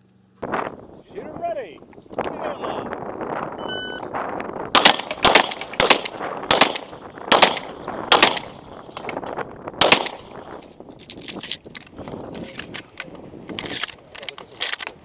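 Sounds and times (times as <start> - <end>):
shotgun shots: 4.7 - 9.2, 9.8 - 10.4.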